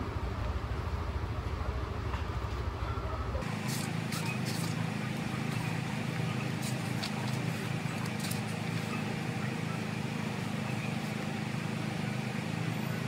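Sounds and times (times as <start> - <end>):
low rumble: 0.0 - 3.4
faint voices: 2.7 - 13.0.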